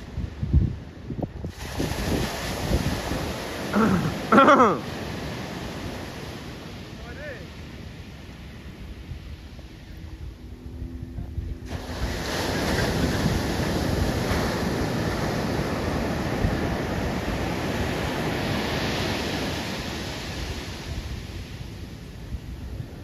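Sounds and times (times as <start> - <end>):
wind on microphone: 0.0 - 4.3, 4.9 - 23.0
sea surf on beach: 0.0 - 23.0.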